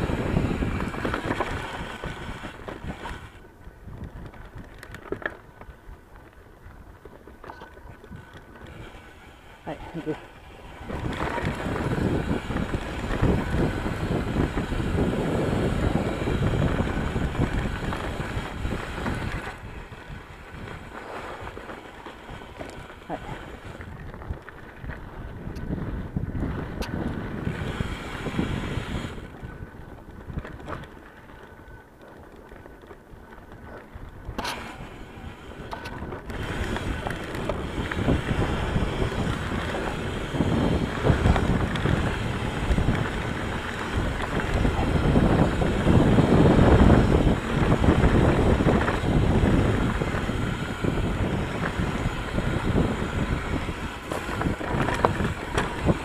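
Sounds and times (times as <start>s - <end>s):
bike tyre rumble on dirt: 0.0s - 56.0s
wind buffeting microphone: 0.0s - 56.0s.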